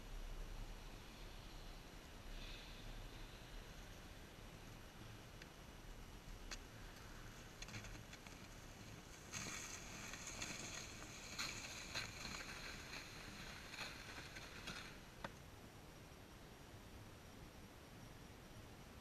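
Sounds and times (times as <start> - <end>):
sleds scraping over snow: 6.7 - 15.3.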